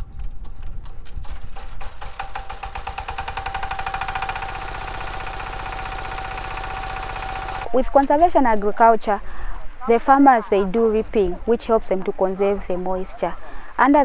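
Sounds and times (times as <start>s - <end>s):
diesel tractor engine knocking: 1.3s - 7.7s.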